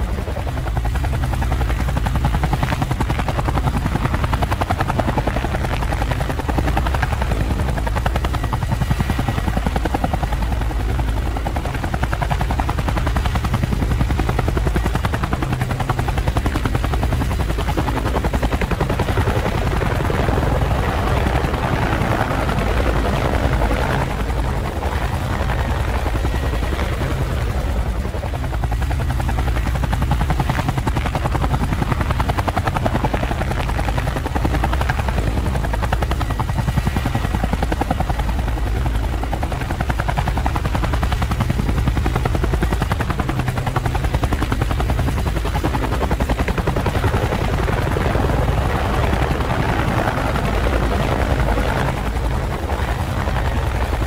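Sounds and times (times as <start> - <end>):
drone propellers whirring: 0.0 - 54.0.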